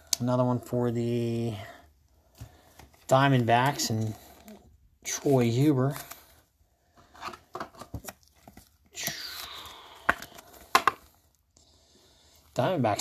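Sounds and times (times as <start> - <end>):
plastic card sleeve rustling: 2.3 - 11.3.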